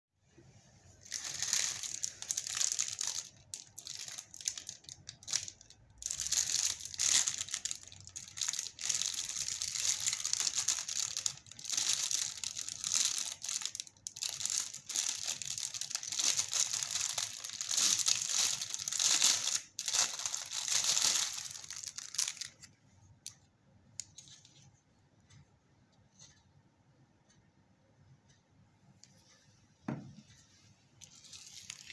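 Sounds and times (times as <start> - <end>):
plastic bag crinkling and tearing: 1.0 - 22.7, 31.1 - 31.9.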